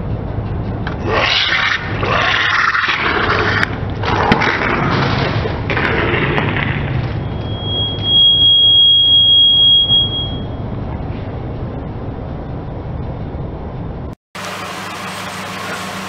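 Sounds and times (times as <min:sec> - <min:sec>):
car engine humming: 0:05.5 - 0:16.0.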